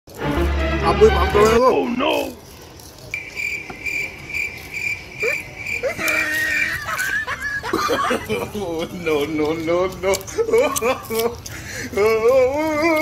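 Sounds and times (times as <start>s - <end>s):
insect trilling: 3.1s - 7.0s.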